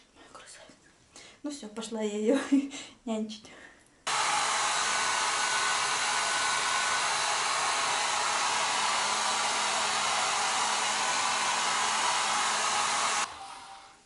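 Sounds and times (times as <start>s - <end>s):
hair dryer running: 4.1s - 14.0s.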